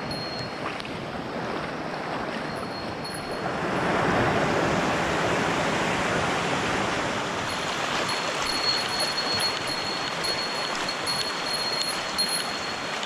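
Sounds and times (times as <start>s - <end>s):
stream flowing over rock: 7.5s - 13.0s.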